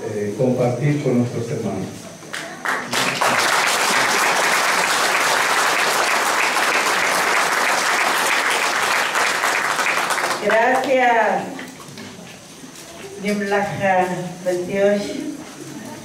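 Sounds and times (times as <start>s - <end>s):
audience applauding: 2.3s - 10.9s.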